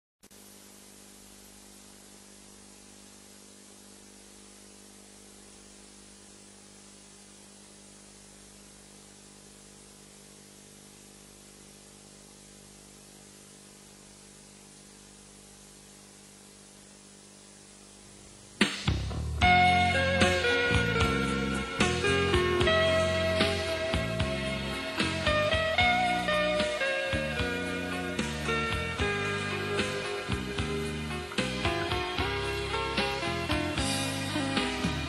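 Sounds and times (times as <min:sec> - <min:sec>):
videotape hiss and hum: 0:00.2 - 0:35.0
loud music: 0:18.6 - 0:35.0.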